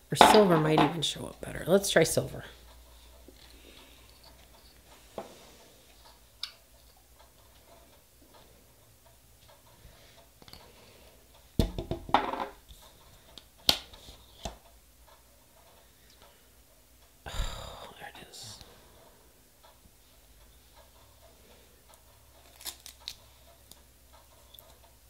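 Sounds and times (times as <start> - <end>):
tools scraping: 2.9 - 6.1.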